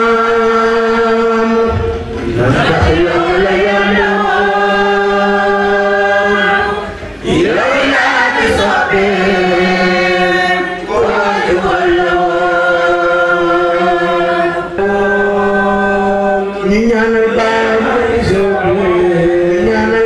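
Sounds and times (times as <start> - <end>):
man chanting: 12.0 - 20.0.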